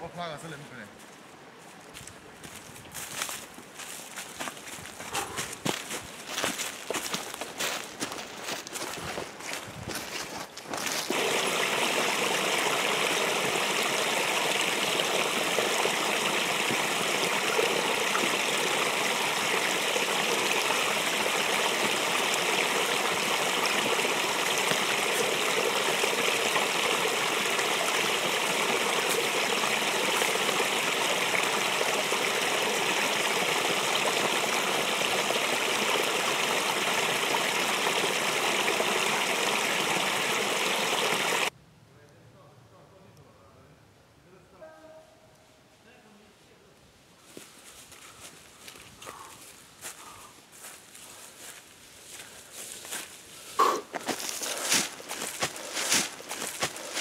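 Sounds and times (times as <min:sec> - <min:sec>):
creek water rushing over rocks: 0:05.4 - 0:41.5, 0:52.9 - 0:57.0.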